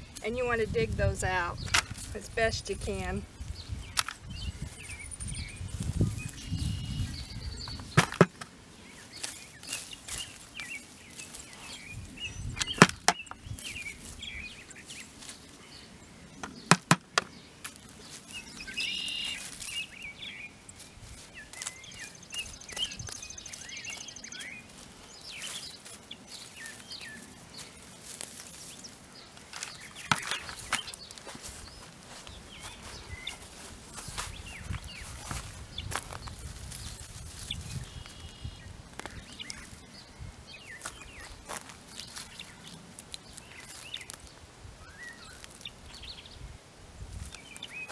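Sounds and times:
birds chirping faintly: 0.0s - 47.9s
hand cultivator scratching soil: 5.9s - 8.5s, 18.8s - 19.8s, 20.9s - 38.4s
sharp knocks: 7.9s - 8.5s, 16.7s - 17.3s.

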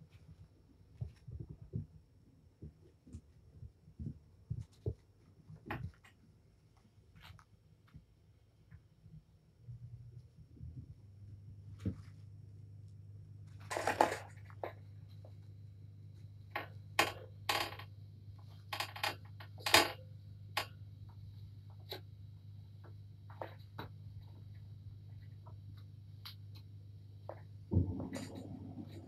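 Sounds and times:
kittens scrabbling and rustling: 0.0s - 8.0s, 13.5s - 15.4s
steady low hum: 0.0s - 29.0s.

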